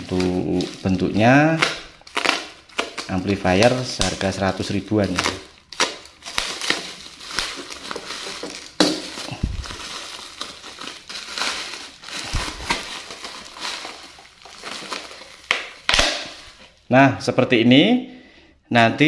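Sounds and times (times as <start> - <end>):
package bumping: 0.0 - 16.6
plastic packaging crinkling: 0.0 - 16.9
sharp crack: 15.4 - 16.5.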